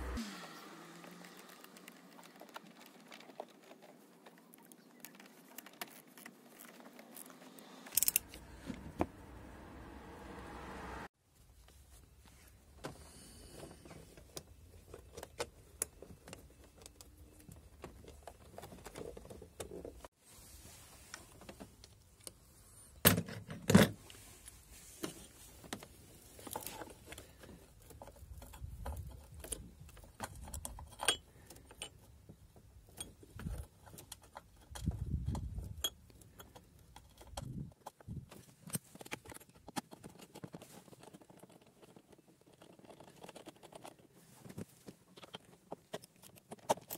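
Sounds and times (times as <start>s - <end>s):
metallic clinks and rattles: 7.9s - 8.4s.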